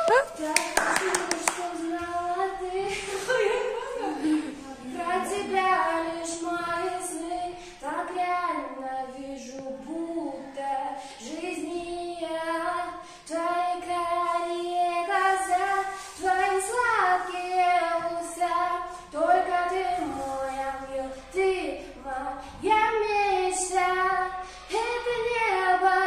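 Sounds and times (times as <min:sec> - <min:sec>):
girl singing: 0:00.0 - 0:26.0
short breaths: 0:24.4 - 0:24.7.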